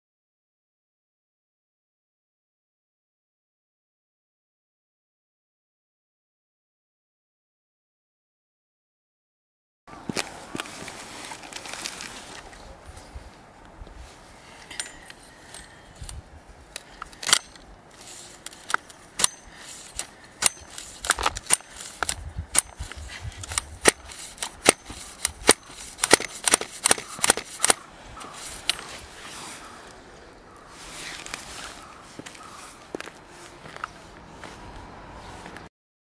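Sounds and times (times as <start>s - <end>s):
clicks and snaps of handled parts: 14.6s - 29.0s.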